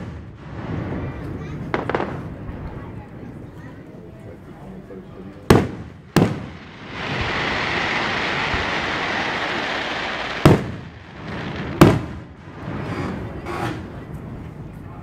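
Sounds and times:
firework hiss: 5.5s - 14.0s
firework shells bursting: 5.5s - 14.0s.

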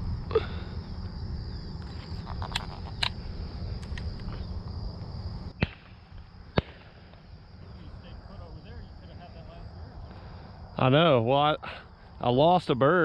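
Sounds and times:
insects droning: 0.0s - 13.0s
sharp cracks: 5.5s - 7.3s.

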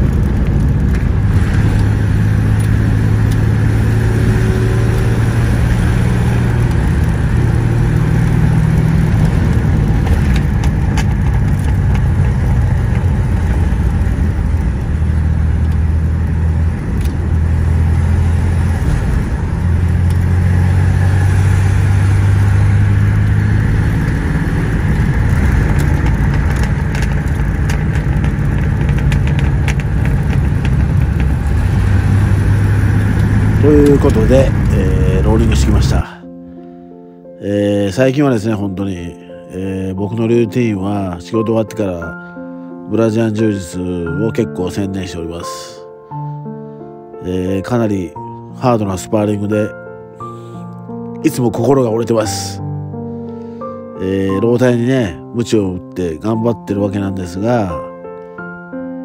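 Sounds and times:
car engine drone inside cabin: 0.0s - 36.0s
faint clicks and rattles: 8.0s - 17.2s, 24.8s - 31.9s.

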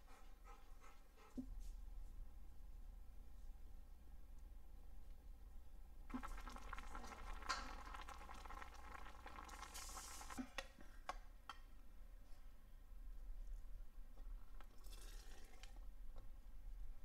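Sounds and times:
steam hissing: 6.1s - 10.4s
brine boiling and bubbling: 6.1s - 10.6s, 14.7s - 15.8s.

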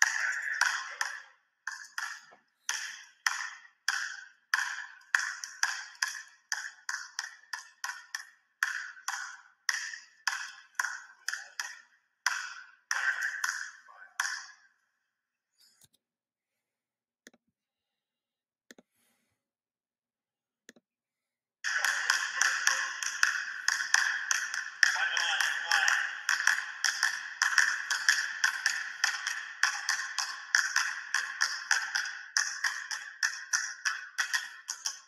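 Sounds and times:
basketball bouncing on wooden floor: 0.0s - 14.5s, 21.7s - 35.0s.

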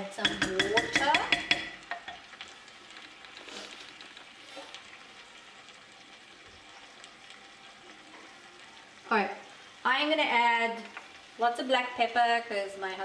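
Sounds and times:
food sizzling in a pot: 0.0s - 13.0s
wooden spoon clicking on pot: 0.2s - 2.2s.

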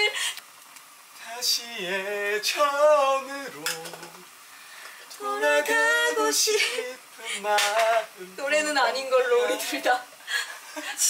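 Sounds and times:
man singing: 1.2s - 4.3s, 5.2s - 10.0s
woman singing: 5.1s - 10.2s.

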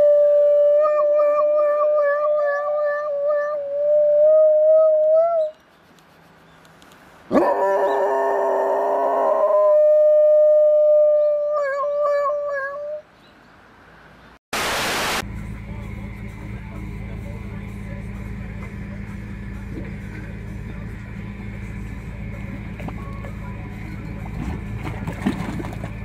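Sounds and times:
dog howling: 7.3s - 13.0s
loud multi-pitched sound: 14.6s - 15.2s.

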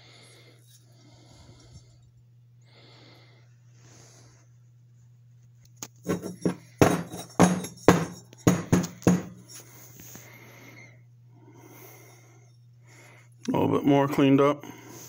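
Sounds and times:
faint low hum: 0.0s - 15.0s
sharp knocks on workbench: 6.1s - 9.4s.

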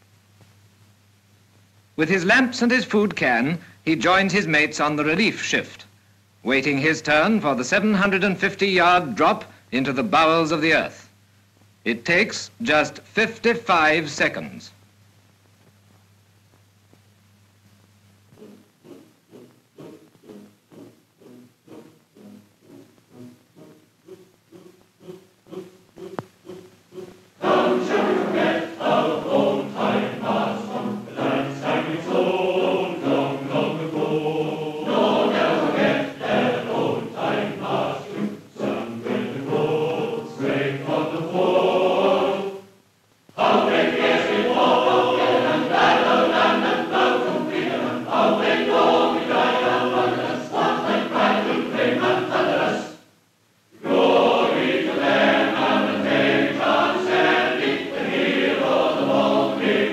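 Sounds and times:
choir singing: 18.4s - 42.8s, 43.4s - 53.1s, 53.8s - 59.9s.

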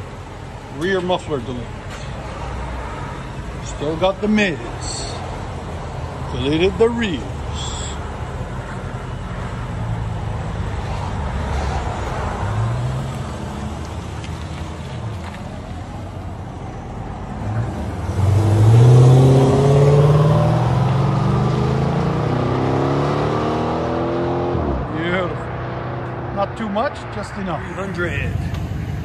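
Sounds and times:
car engine revving: 17.2s - 29.0s.

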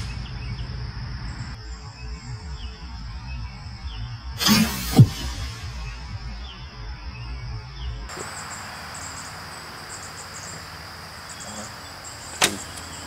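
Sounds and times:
insects chirping: 0.0s - 13.0s
crossbow shot crack: 4.4s - 5.8s.

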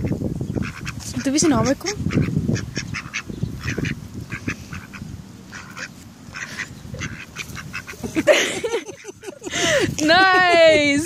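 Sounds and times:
duck quacking: 0.0s - 8.2s.

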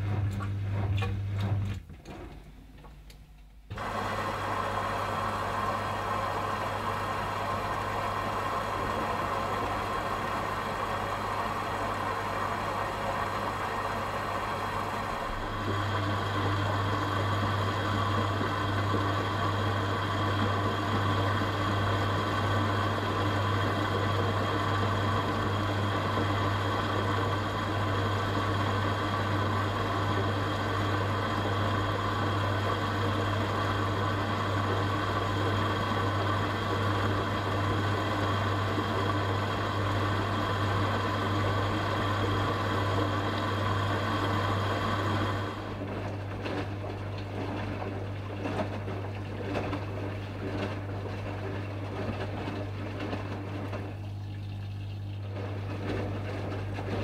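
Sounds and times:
water streaming into drum: 3.7s - 57.0s.

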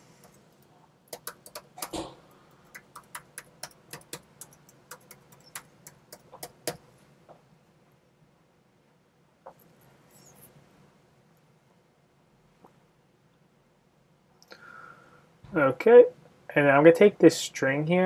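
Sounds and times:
keyboard typing clicks: 0.2s - 2.1s, 2.7s - 6.8s.

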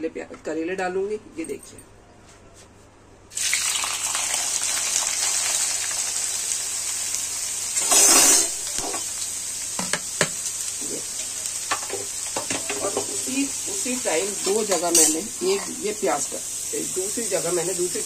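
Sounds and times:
vegetables sizzling in hot oil: 3.3s - 18.0s
spoon scraping metal pan: 7.8s - 8.6s, 14.4s - 15.8s.

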